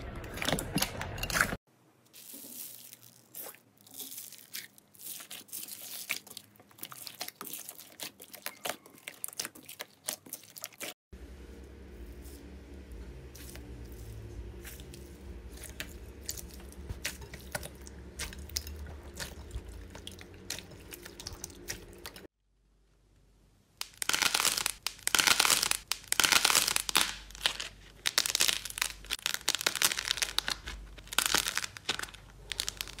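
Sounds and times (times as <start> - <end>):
dry clay crackling and crunching: 0.0 - 22.3, 23.8 - 33.0
hand squelching slime: 2.1 - 10.9, 13.3 - 22.3.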